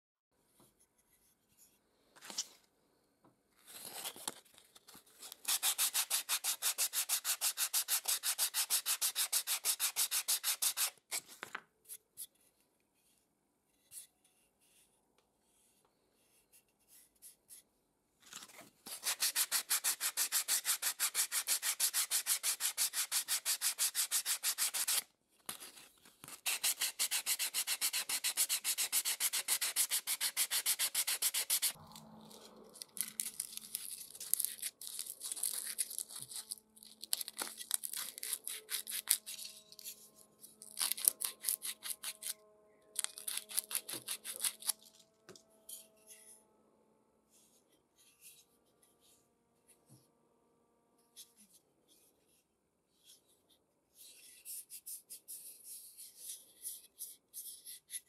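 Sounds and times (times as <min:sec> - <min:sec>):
sandpaper rubbing on wood: 0:05.4 - 0:11.0, 0:18.9 - 0:25.0, 0:26.3 - 0:31.8.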